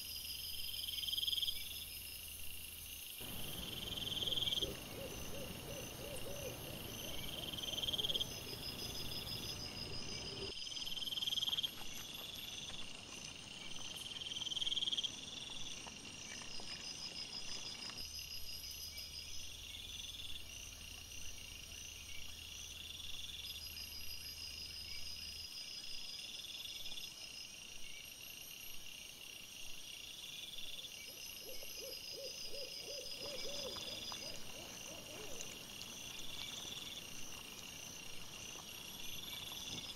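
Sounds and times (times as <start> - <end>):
insects chirping: 0.0 - 39.9
higher repeating insect call: 0.1 - 12.7, 30.1 - 39.9
wild boar feeding: 3.2 - 10.5.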